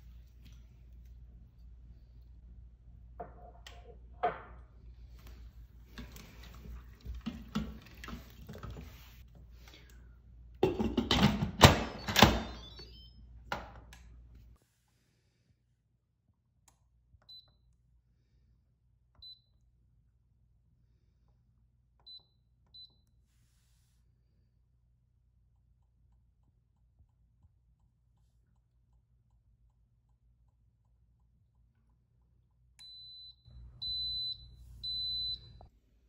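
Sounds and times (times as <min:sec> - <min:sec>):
kitchen clattering and clanks: 0:10.6 - 0:12.5.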